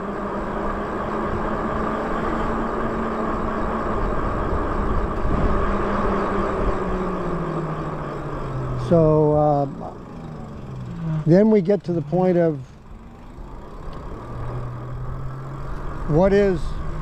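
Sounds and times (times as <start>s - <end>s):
electric motor and tyres humming: 0.0s - 17.0s
wind rushing over microphone: 2.4s - 9.2s.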